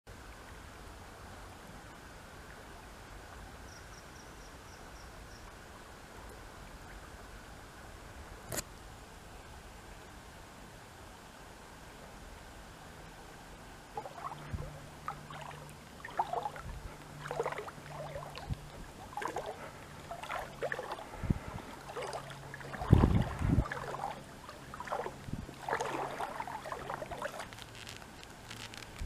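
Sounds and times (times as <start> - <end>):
faint low hum: 0.1 - 29.0
water splashing and lapping: 13.8 - 29.0
paddle dipping in water: 13.9 - 29.0.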